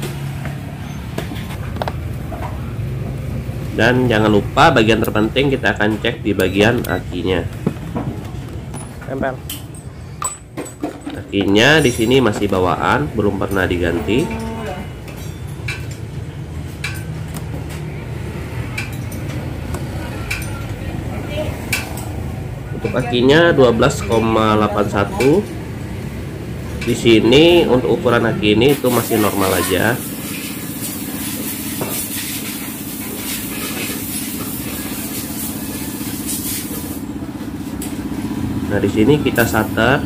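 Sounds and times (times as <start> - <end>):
sharp metallic clinks: 11.6 - 12.6, 13.5 - 16.0.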